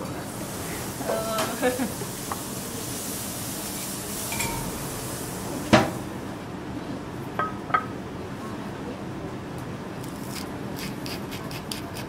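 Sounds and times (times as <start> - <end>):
crockery clinking: 4.3 - 4.8.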